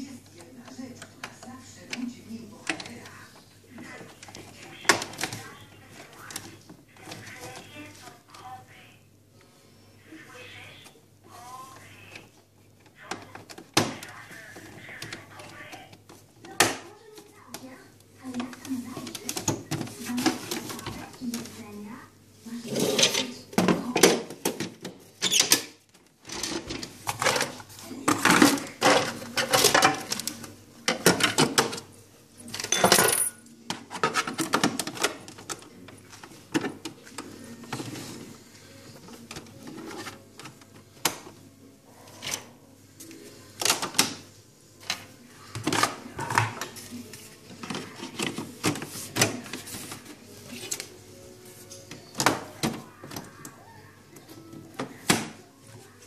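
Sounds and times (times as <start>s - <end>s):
hard plastic parts clattering: 22.9s - 31.9s.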